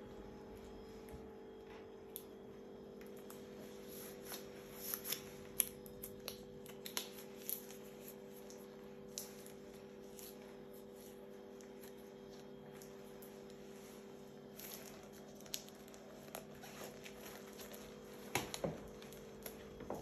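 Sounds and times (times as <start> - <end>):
steady low hum: 0.0 - 20.0
latex gloves crackling: 4.0 - 20.0.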